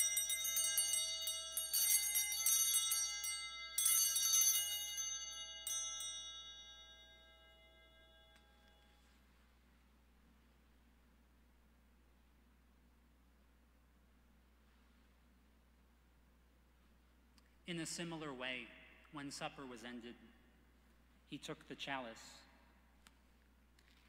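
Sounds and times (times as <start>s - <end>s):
small handbells jingling: 0.0s - 9.0s.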